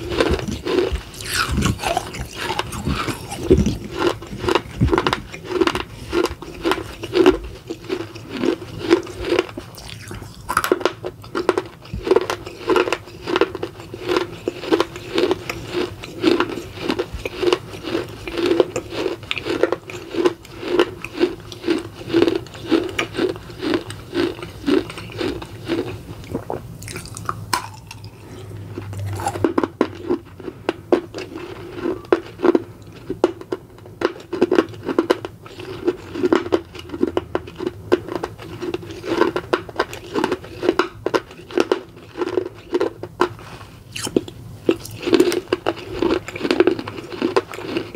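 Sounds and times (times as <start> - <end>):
crunchy chewing: 0.0 - 47.9.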